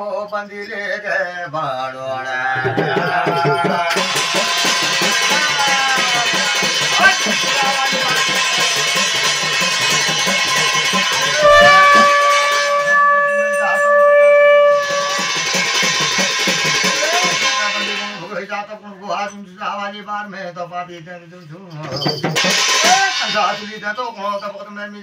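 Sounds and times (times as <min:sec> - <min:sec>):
ringing percussion: 0:02.2 - 0:18.6, 0:21.7 - 0:24.6
hand drum: 0:02.6 - 0:18.2
blown horn note sliding up: 0:11.2 - 0:16.0.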